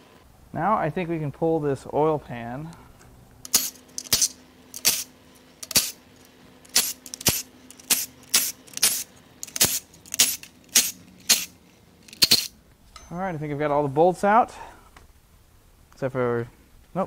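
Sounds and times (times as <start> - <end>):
steel bolts clinking on metal: 12.1 - 13.2.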